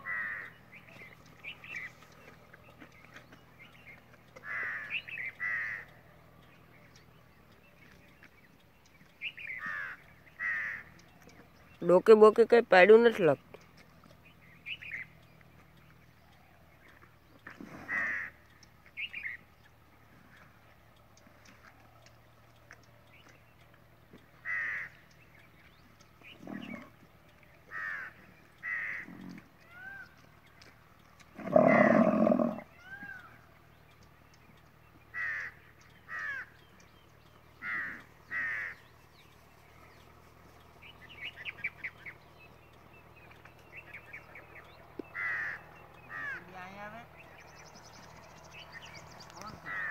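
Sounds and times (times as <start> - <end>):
crows cawing: 0.0 - 0.6, 4.3 - 6.0, 9.5 - 11.0, 17.9 - 18.5, 24.4 - 25.1, 27.7 - 30.1, 35.1 - 36.6, 37.5 - 38.9, 45.1 - 46.5, 49.6 - 49.9
loud low animal call: 17.4 - 18.4, 31.3 - 33.2.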